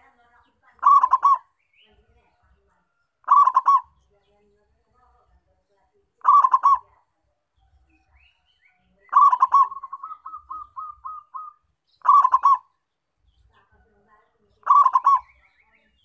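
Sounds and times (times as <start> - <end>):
dove cooing: 0.8 - 1.5, 3.2 - 3.9, 6.2 - 6.9, 9.1 - 12.7, 14.6 - 15.4.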